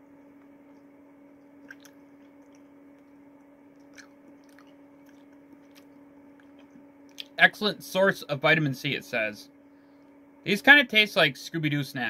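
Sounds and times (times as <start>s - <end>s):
steady low hum: 0.0s - 12.0s
soft chewing mouth clicks: 0.4s - 7.4s.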